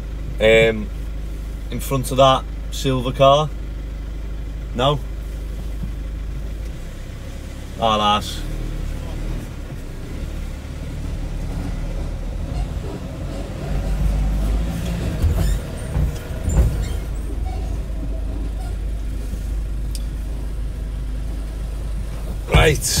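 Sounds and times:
vehicle engine running at low revs: 0:00.0 - 0:23.0.

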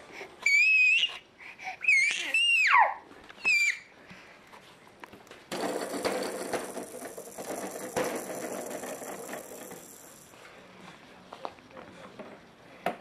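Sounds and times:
plastic toy parts whirring and clicking: 0:05.5 - 0:10.4.

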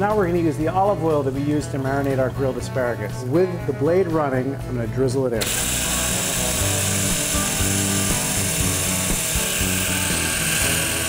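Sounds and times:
hand blender motor running: 0:05.4 - 0:11.0.

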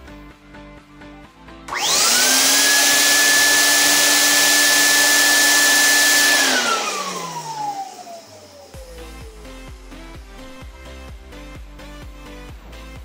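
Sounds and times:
blower motor whining: 0:01.7 - 0:11.1.

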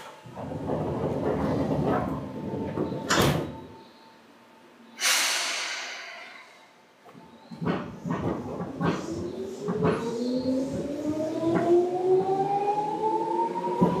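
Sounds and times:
train doors sliding shut: 0:00.0 - 0:03.8, 0:05.0 - 0:11.8, 0:13.6 - 0:14.0
compressed air hiss: 0:05.0 - 0:06.7.

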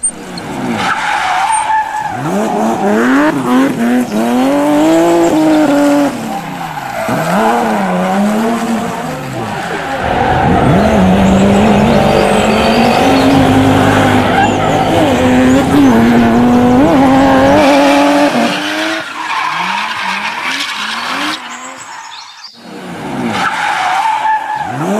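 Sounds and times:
vehicle engine running and revving: 0:02.1 - 0:21.9.

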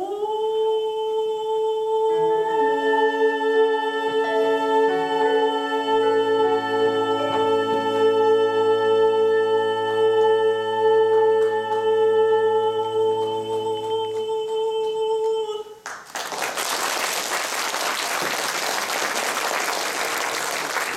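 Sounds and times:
man singing with orchestra: 0:00.0 - 0:15.8
audience applause: 0:15.8 - 0:20.9.

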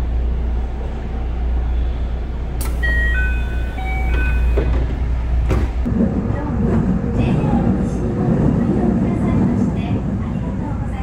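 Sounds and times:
electric train humming: 0:00.0 - 0:11.0
click: 0:02.6 - 0:02.8.

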